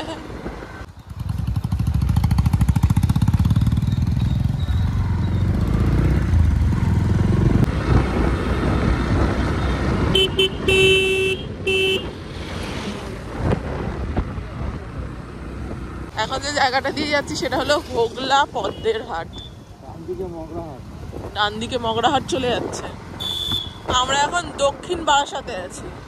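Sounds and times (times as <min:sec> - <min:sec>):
motorcycle engine and road noise: 0:00.0 - 0:26.0
vehicle horn: 0:10.1 - 0:12.1, 0:23.2 - 0:23.9.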